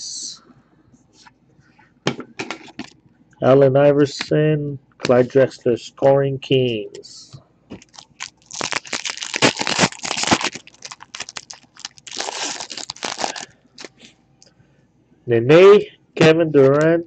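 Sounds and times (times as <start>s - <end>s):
foil wrapper crinkling and tearing: 7.8s - 13.9s.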